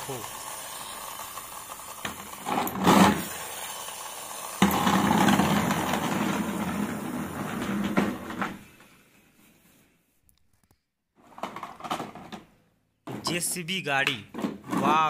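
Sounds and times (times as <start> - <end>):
toy bus wheels whirring: 0.0 - 9.8
toy bus scraping: 4.7 - 9.9.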